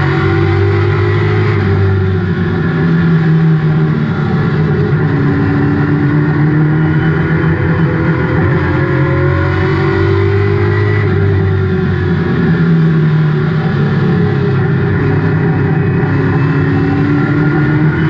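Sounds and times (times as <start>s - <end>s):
race car engine revving: 0.0s - 18.0s.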